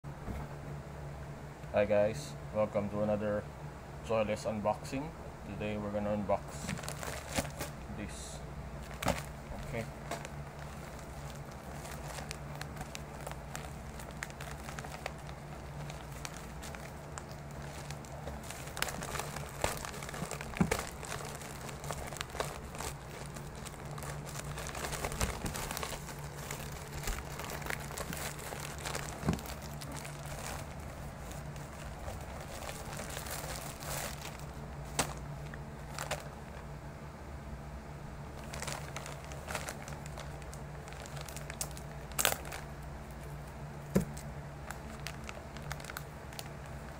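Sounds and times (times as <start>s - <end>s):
steady low hum: 0.0s - 46.9s
plastic bags crinkling: 6.5s - 8.2s, 8.8s - 36.7s, 38.3s - 46.9s
plastic tearing: 6.6s - 7.8s, 8.8s - 36.6s, 38.4s - 42.6s, 43.9s - 46.9s.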